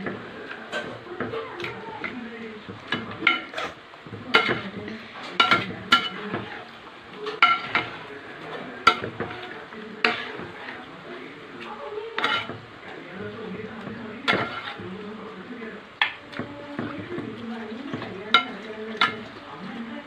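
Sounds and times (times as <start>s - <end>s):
curry bubbling: 0.0s - 20.0s
ladle scraping through curry: 2.8s - 11.6s, 12.2s - 13.1s, 13.8s - 15.0s
ladle clinking on metal pot: 5.4s - 6.6s, 7.3s - 8.0s, 8.9s - 9.4s, 12.2s - 12.6s, 14.3s - 14.8s, 17.9s - 19.3s.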